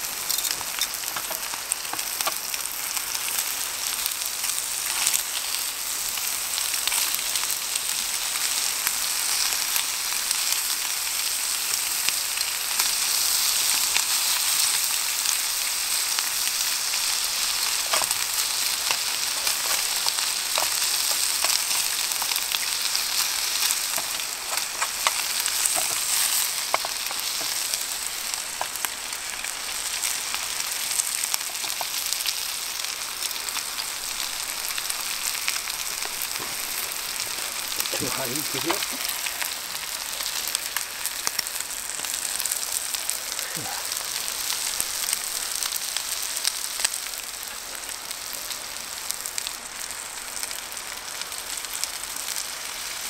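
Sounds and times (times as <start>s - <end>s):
food sizzling in a frying pan: 0.0s - 53.0s
utensil clicking and scraping: 18.8s - 22.4s, 23.2s - 27.7s.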